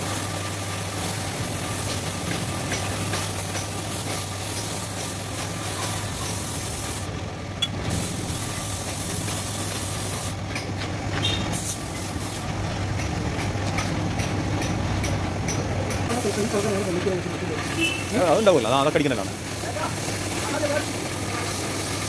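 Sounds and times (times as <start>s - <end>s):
paint spray gun hissing: 0.0s - 7.1s, 7.9s - 10.4s, 11.5s - 12.4s, 16.1s - 22.0s.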